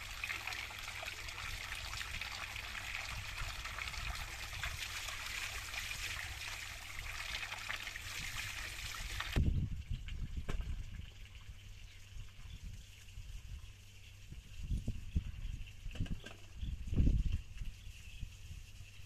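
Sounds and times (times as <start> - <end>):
water pouring into stone basin: 0.0 - 9.4.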